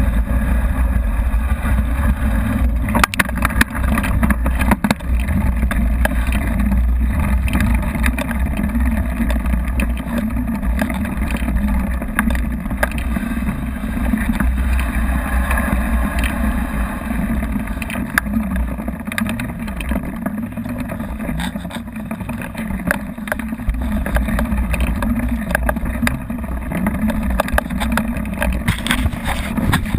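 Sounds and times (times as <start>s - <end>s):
bike tyre rolling on concrete: 0.0s - 29.9s
wind buffeting microphone: 0.0s - 29.9s
bike clicking and knocking: 21.2s - 29.9s.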